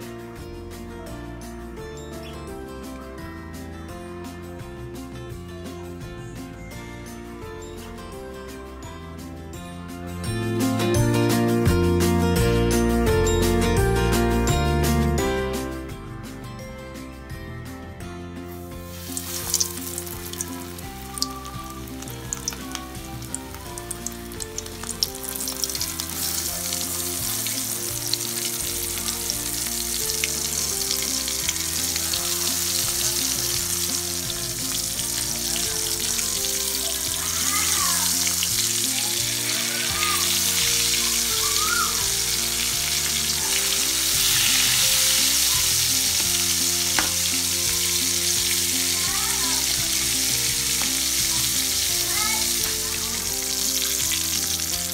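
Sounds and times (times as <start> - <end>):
chicken frying in hot oil: 18.9 - 54.9.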